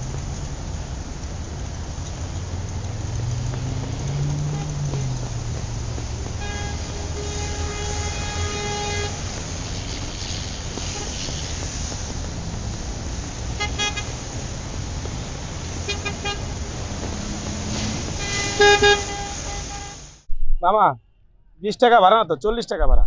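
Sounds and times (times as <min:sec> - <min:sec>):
road traffic rumble: 0:00.0 - 0:20.3
vehicle horns: 0:03.3 - 0:20.2.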